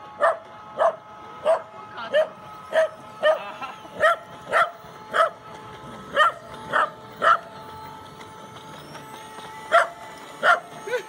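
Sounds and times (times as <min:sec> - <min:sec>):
small dog barking: 0:00.2 - 0:01.6, 0:04.0 - 0:05.3, 0:06.2 - 0:07.4.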